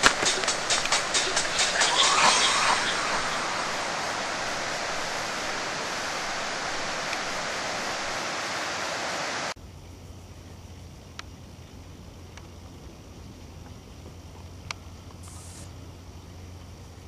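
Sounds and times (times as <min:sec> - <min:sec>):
rushing water: 0:00.0 - 0:09.6.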